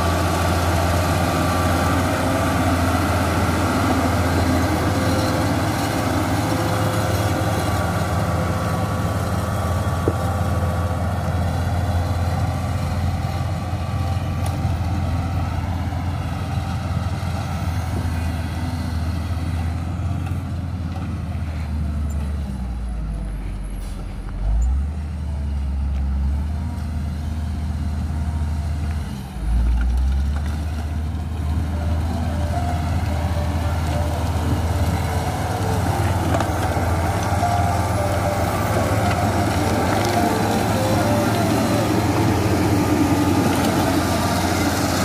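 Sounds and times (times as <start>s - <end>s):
diesel engine droning with whine: 0.0s - 45.0s
blade scraping gravel and soil: 29.4s - 45.0s.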